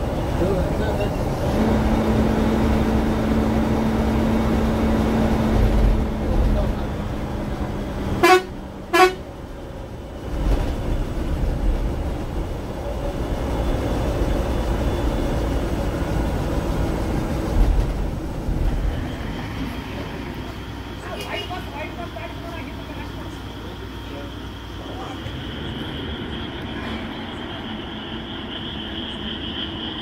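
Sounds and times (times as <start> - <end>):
diesel engine and tyres running: 0.0 - 30.0
bus horn honks: 8.1 - 9.4.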